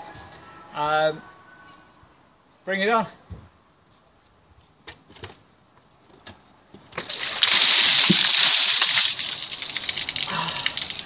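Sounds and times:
water splashing over person: 7.0s - 11.0s.

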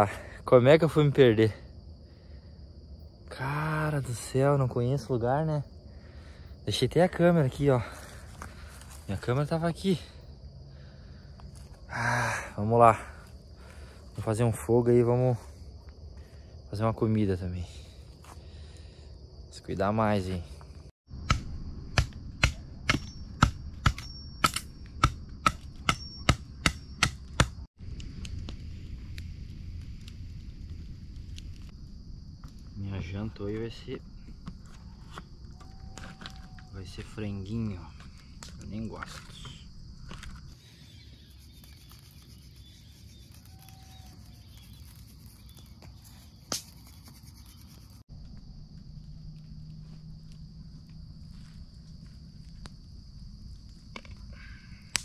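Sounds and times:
high insect trill: 0.0s - 55.0s
sharp chopping strikes: 21.2s - 27.6s
sharp snap: 46.5s - 46.9s.

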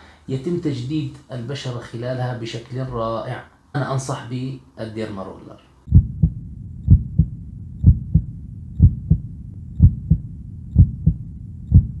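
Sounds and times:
low steady hum: 0.0s - 12.0s
heartbeat thumps: 5.9s - 12.0s.

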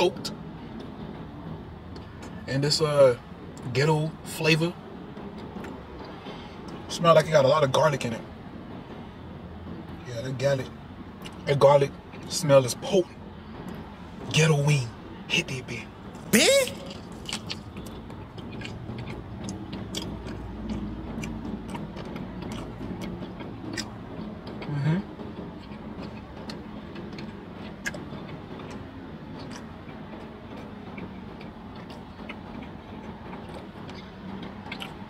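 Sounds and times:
man chewing with wet mouth smacks: 16.6s - 24.7s, 25.6s - 28.8s, 29.4s - 29.7s, 30.5s - 35.0s.

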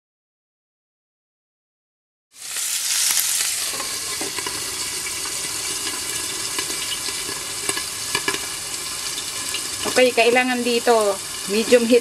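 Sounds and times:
fish sizzling in frying pan: 2.3s - 12.0s.

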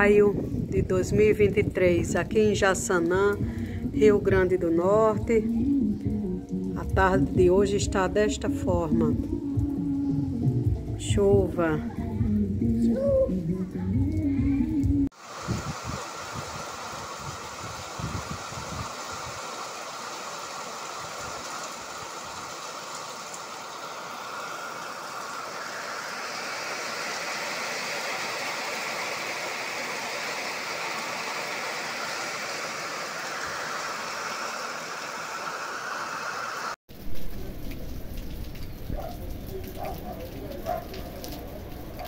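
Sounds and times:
dull low thumps: 3.4s - 4.4s, 8.7s - 15.0s
heavy rain falling: 15.1s - 42.0s.

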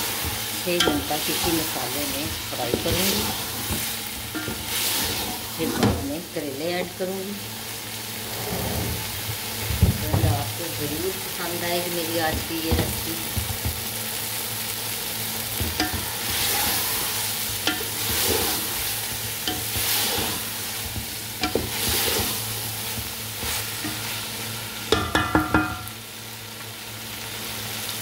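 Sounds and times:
food sizzling in a pot: 0.0s - 28.0s
wooden spatula scraping pot: 0.8s - 6.0s, 15.8s - 24.0s
spatula knocking on pot: 24.9s - 25.9s.

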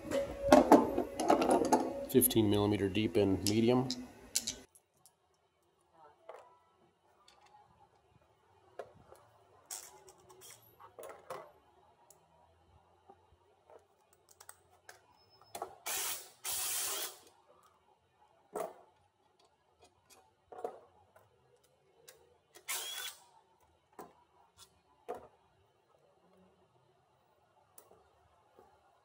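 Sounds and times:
air ratchet spinning: 15.9s - 17.3s, 22.7s - 23.2s.

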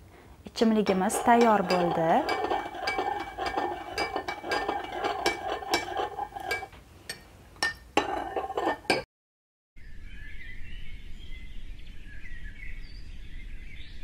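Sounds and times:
metal spoon clinking against glass: 0.9s - 9.0s.

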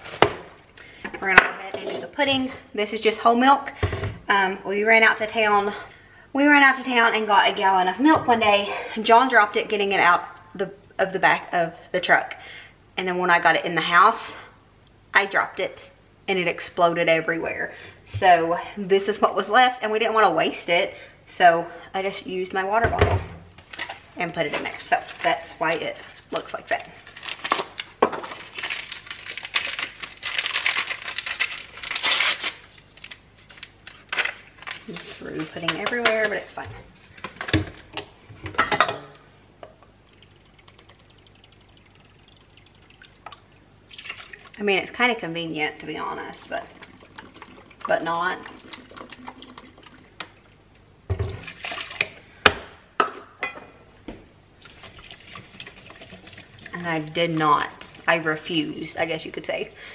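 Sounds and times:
packaging crinkling and tearing: 26.0s - 37.2s
milk pouring into a bowl: 40.0s - 44.6s, 46.5s - 50.3s.

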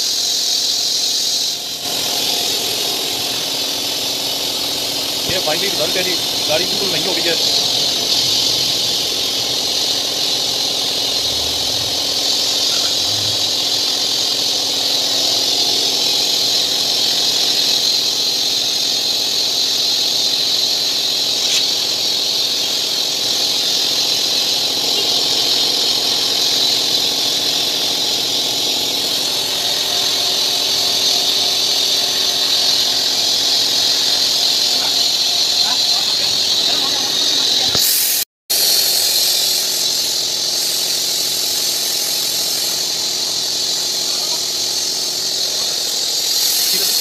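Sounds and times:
pressure washer water hiss: 0.0s - 47.0s
engine hum: 1.8s - 17.8s.

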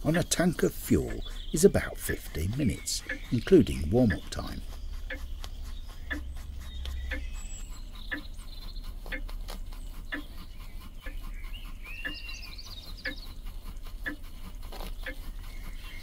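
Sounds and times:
model steam engine beating: 0.0s - 5.3s
budgerigar chirping and warbling: 1.0s - 16.0s.

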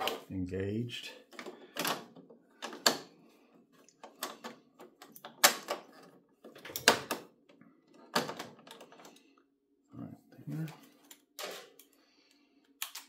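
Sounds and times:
plastic parts clicking into place: 1.3s - 3.1s, 3.8s - 9.2s, 12.6s - 13.0s.

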